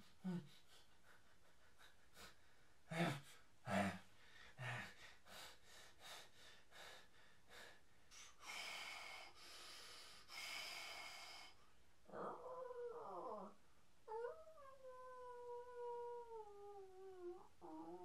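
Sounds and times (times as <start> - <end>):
person gasping and breathing heavily: 0.0 - 11.6.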